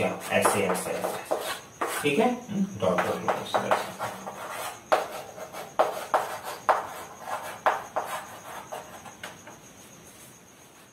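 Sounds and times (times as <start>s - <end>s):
chalk scratching on chalkboard: 0.0s - 2.3s, 2.9s - 9.3s.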